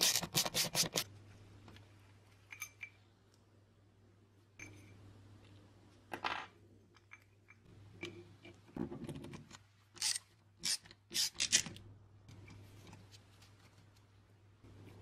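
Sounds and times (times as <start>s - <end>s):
metal parts clicking and clinking: 9.1s - 11.8s.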